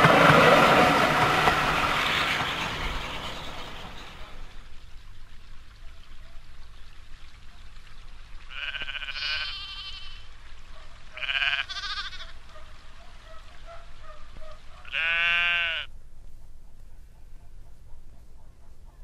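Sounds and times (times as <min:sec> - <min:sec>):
sheep bleating: 0:08.5 - 0:10.2, 0:11.2 - 0:12.4, 0:14.8 - 0:15.9.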